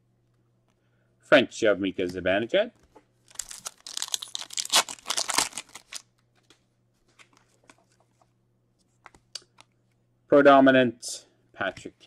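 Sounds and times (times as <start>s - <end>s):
foil wrapper crinkling and tearing: 3.3s - 6.1s.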